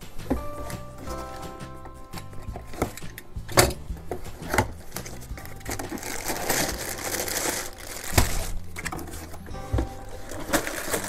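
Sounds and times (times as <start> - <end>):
plastic bag crinkling: 4.0 - 11.0.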